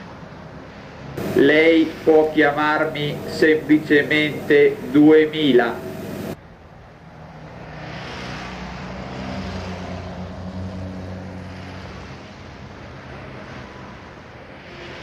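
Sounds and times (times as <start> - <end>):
road noise hiss: 0.0 - 15.0
car engine drone: 1.2 - 7.0.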